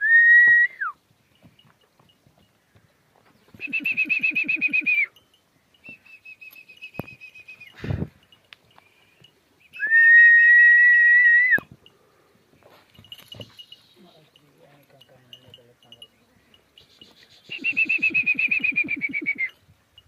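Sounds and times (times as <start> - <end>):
person whistling: 0.0 - 1.0, 3.6 - 5.1, 9.8 - 11.7, 17.1 - 19.6.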